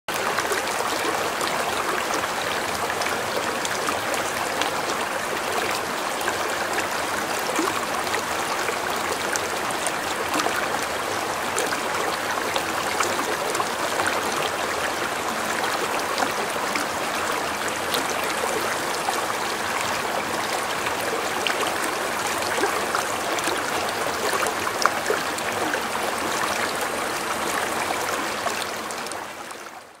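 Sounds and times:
stream splashing over rocks: 0.1s - 30.0s.

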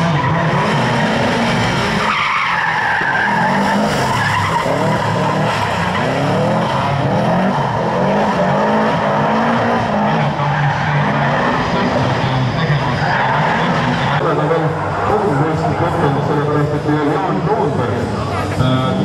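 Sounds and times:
tyres squealing on tarmac: 0.0s - 18.0s
rally car engine revving: 0.0s - 19.0s.

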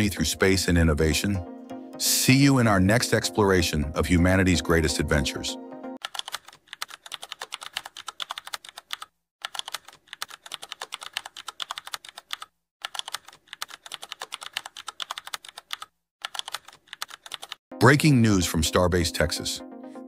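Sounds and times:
fast keyboard typing clicks: 6.0s - 17.6s.

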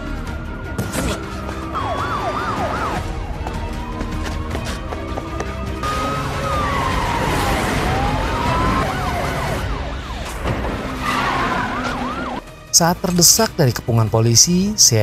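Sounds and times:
police sirens wailing: 0.0s - 12.5s
siren yelp: 1.1s - 5.0s, 5.8s - 12.4s.

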